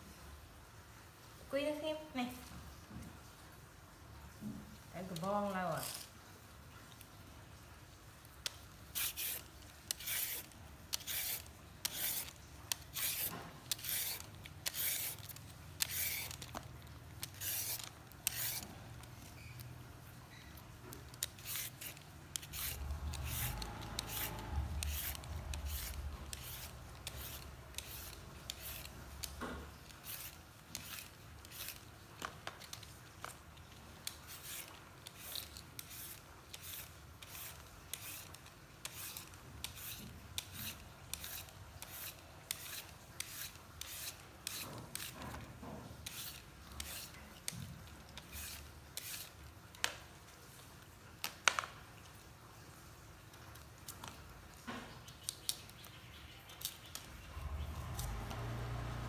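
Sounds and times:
vegetable peeler scraping carrot: 0:05.0 - 0:06.2, 0:08.4 - 0:49.8, 0:56.5 - 0:59.0.

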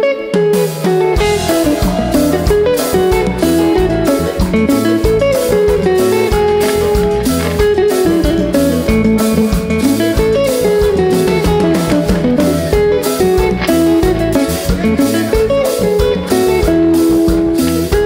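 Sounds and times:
electric guitar melody: 0:00.0 - 0:18.0
drum kit and bass groove: 0:00.5 - 0:18.0.

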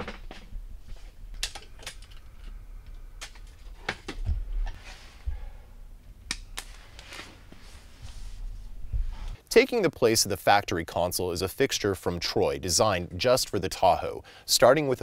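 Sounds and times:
low steady hum: 0:00.0 - 0:14.4
hard parts clicking and clacking: 0:01.3 - 0:04.4.

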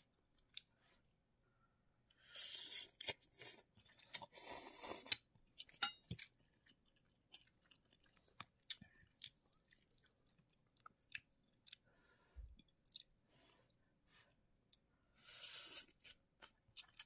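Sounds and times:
person slurping noodles: 0:04.2 - 0:05.1.

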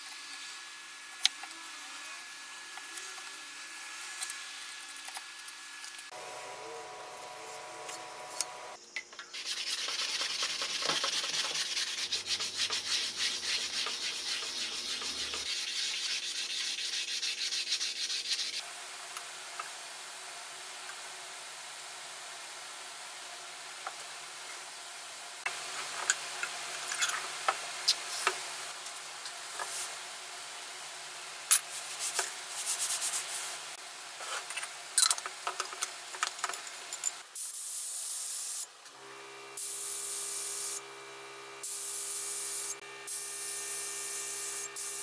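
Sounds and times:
air spray gun hissing: 0:39.6 - 0:40.8, 0:41.6 - 0:45.0.

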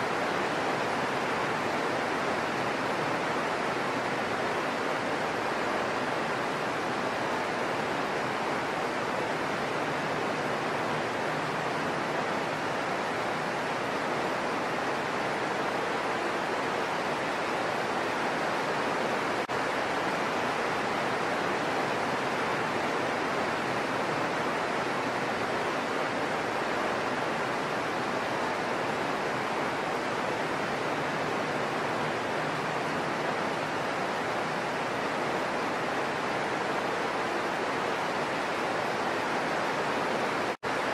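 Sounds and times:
heavy rain on leaves: 0:00.0 - 0:40.9.

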